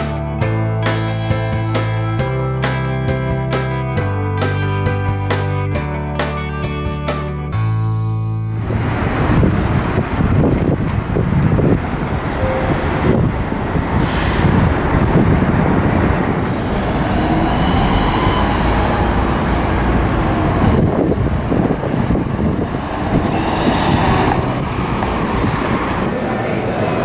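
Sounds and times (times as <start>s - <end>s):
road traffic rumbling: 0.0s - 27.0s
short hisses: 14.0s - 14.6s.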